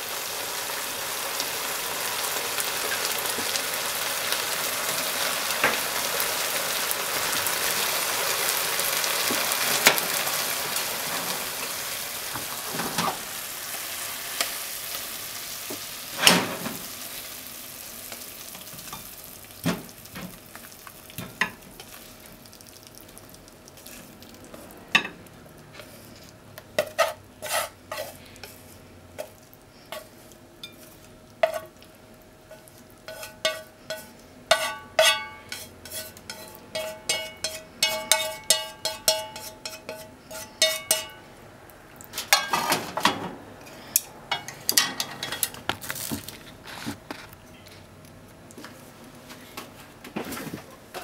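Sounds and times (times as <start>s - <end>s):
chopsticks clinking on pan and plate: 33.1s - 41.2s.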